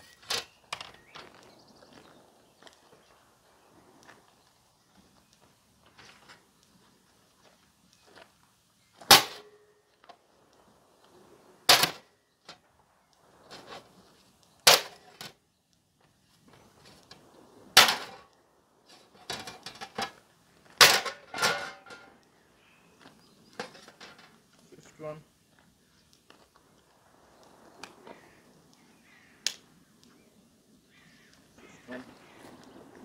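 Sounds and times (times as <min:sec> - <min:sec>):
metal plate clattering: 0:17.8 - 0:18.2, 0:19.0 - 0:20.2, 0:20.8 - 0:22.1.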